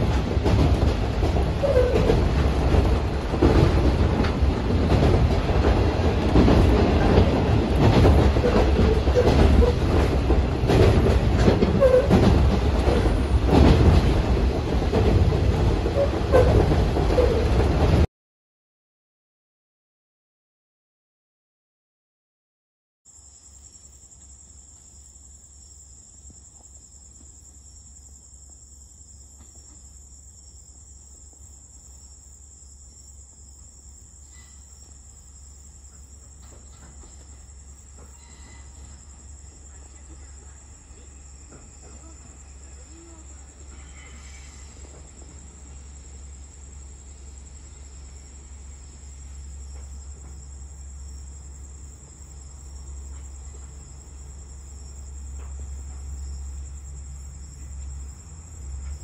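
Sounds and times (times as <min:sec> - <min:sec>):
crickets chirring: 0:00.0 - 0:14.7, 0:23.1 - 0:59.0
diesel railcar rumble: 0:00.0 - 0:18.1, 0:27.0 - 0:59.0.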